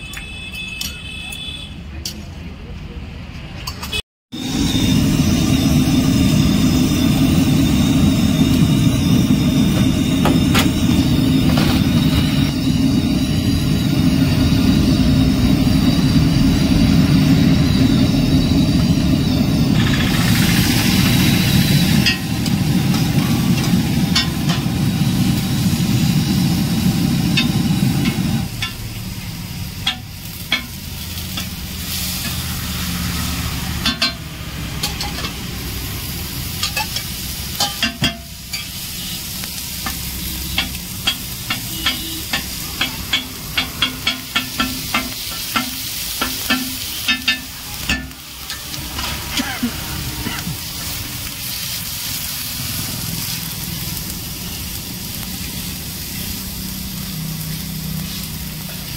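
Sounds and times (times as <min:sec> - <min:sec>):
food sizzling: 0:04.3 - 0:58.9
loud low hum: 0:04.4 - 0:29.1
spatula scraping and tapping griddle: 0:39.8 - 0:49.6.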